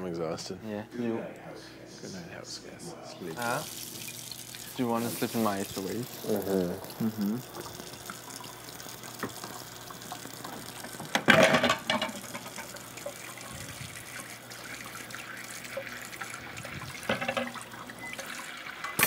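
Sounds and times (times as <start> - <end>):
tap running into steel sink: 9.2 - 9.4
spoon and dish rinsed: 10.5 - 19.0.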